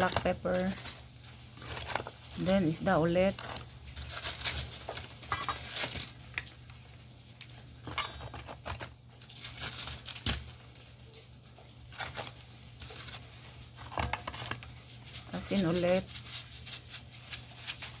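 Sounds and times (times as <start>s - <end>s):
plastic crinkling: 0.0s - 18.0s.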